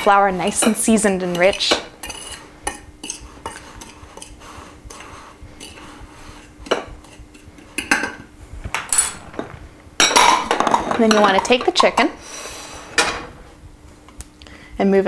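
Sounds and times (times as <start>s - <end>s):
metal spoon scraping glass dish: 0.4s - 5.8s.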